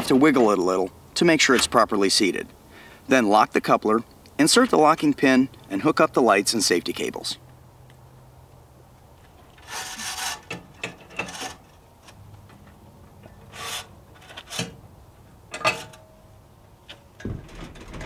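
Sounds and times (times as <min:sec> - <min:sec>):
steel cables scraping and clinking: 0:09.5 - 0:12.2, 0:13.2 - 0:14.8.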